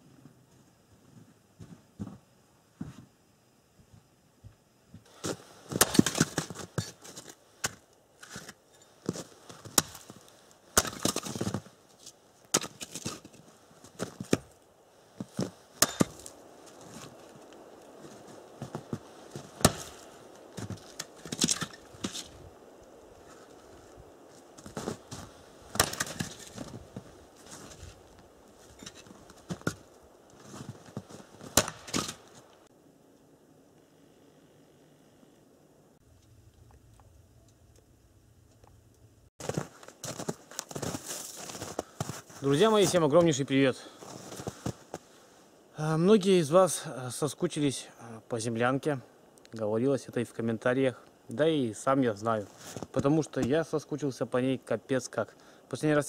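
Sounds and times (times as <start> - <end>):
axe splitting firewood: 5.1 - 8.6, 9.6 - 10.1, 10.8 - 11.7, 12.5 - 13.4, 15.4 - 16.4, 19.6 - 22.4, 25.7 - 26.8, 31.4 - 32.5.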